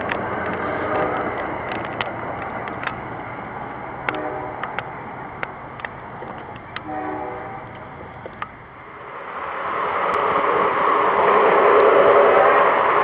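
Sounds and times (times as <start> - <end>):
model train rumbling past: 0.0 - 13.0
train horn: 0.6 - 1.2, 4.1 - 4.7, 6.8 - 7.8.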